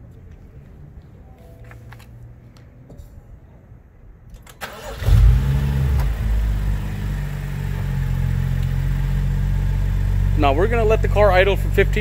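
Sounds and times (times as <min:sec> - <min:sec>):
car engine starting and idling: 0:04.3 - 0:12.0.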